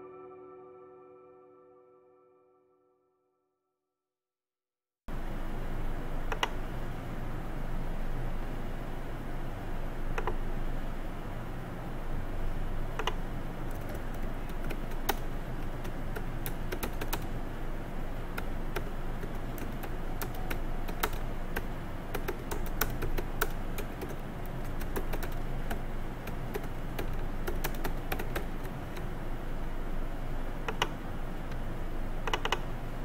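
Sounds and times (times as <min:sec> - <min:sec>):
steady low hum: 0:05.1 - 0:33.0
keyboard key clicks: 0:06.3 - 0:06.6, 0:10.2 - 0:10.4, 0:13.0 - 0:17.3, 0:18.4 - 0:29.1, 0:30.7 - 0:31.0, 0:32.2 - 0:32.7.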